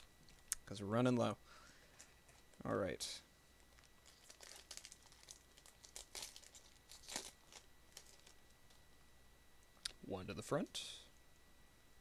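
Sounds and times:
plastic wrapper crinkling: 3.6 - 8.8.

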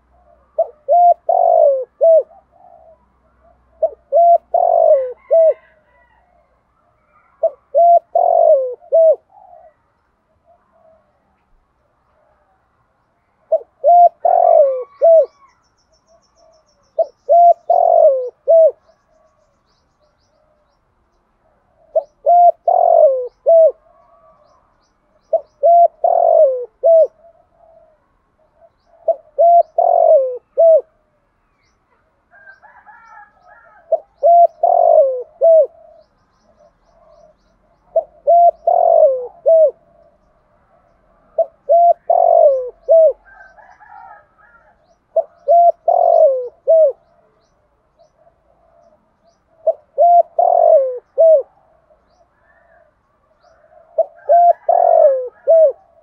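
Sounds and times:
dove cooing: 0.0 - 12.7, 13.4 - 19.5, 21.3 - 31.2, 31.9 - 56.0
small birds chirping: 6.8 - 30.6, 31.2 - 56.0.

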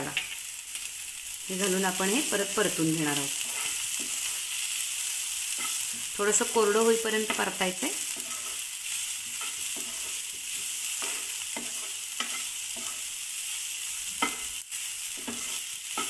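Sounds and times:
masala sizzling in a pan: 0.0 - 16.0
spatula scraping pan: 3.2 - 6.2, 7.2 - 13.1, 14.0 - 16.0.

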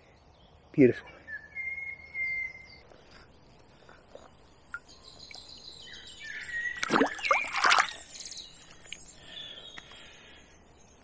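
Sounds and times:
birds singing: 0.0 - 11.0
fish splashing in water: 6.8 - 8.1.

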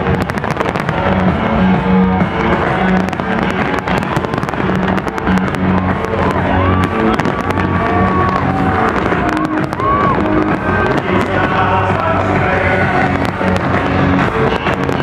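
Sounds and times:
fireworks bursting and crackling: 0.0 - 15.0
loud music with bass: 0.0 - 15.0.

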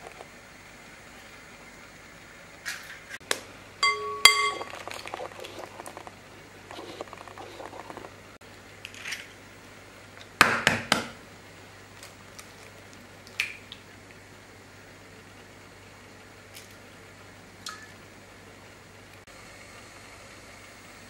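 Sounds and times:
eggshell crackling: 4.1 - 9.1.

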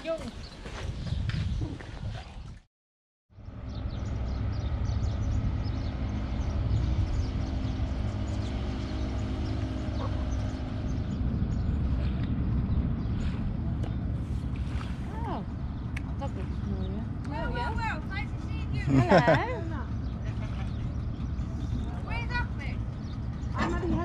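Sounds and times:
motorboat engine droning: 3.4 - 24.0.

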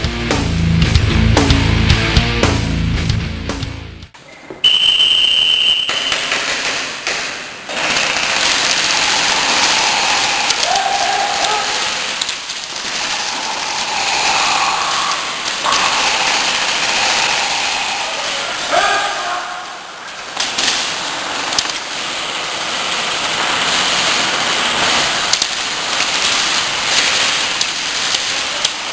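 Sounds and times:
short high tone: 4.6 - 6.1
airsoft guns firing bursts: 5.4 - 14.3, 15.4 - 18.1, 20.2 - 28.9.

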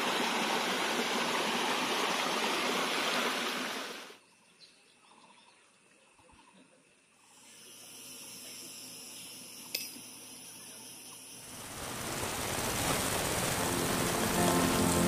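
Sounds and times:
steady hiss: 7.2 - 15.0.

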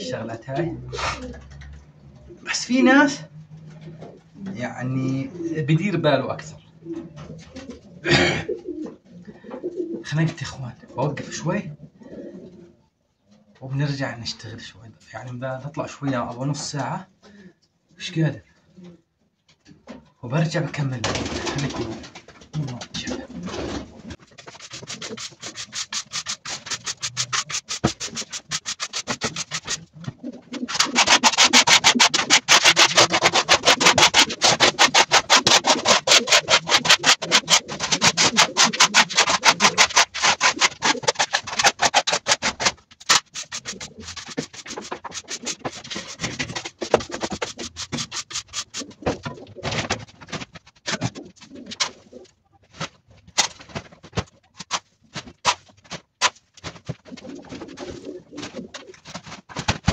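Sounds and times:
pigeons cooing: 0.7 - 2.5, 3.5 - 5.8, 6.6 - 10.0, 11.8 - 12.8, 23.2 - 42.7, 57.2 - 59.0
scraping straw across concrete: 24.4 - 29.8, 30.6 - 48.9.

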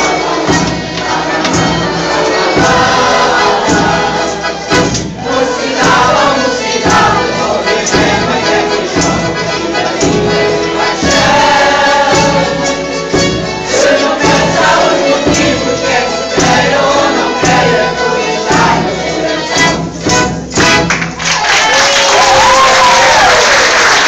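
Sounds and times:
mixed choir singing: 0.0 - 20.9
plucked strings: 0.0 - 21.2
bass drum beating: 0.5 - 9.4.

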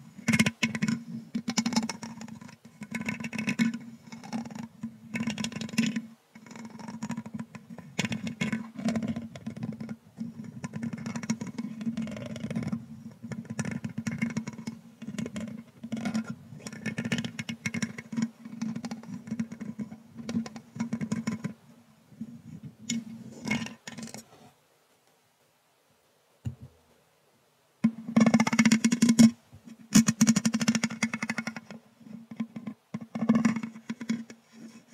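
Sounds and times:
brush scratching microphone grille: 28.2 - 34.9.

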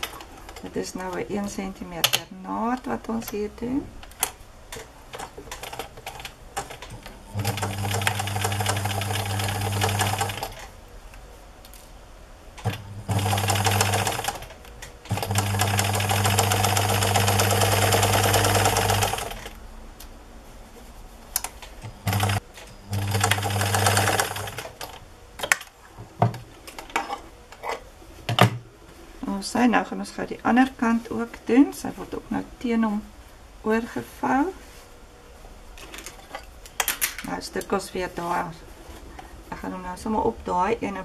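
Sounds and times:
sewing machine stitching: 5.5 - 10.7, 12.6 - 14.5, 15.1 - 19.5, 22.0 - 24.7.

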